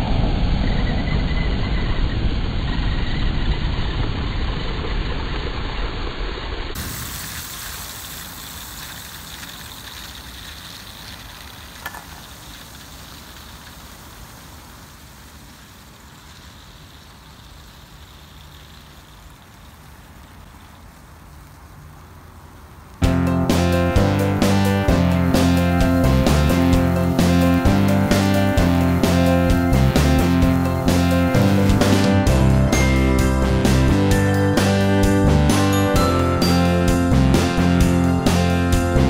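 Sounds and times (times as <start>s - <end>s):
sparklers hissing: 6.8s - 20.8s, 23.1s - 34.7s.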